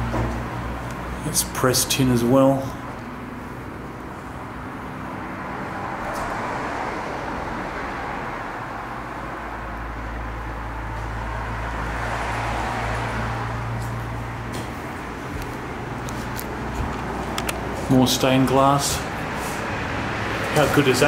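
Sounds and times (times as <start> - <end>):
heavy vehicle engine hum: 0.0 - 21.0
road traffic passing: 0.0 - 21.0.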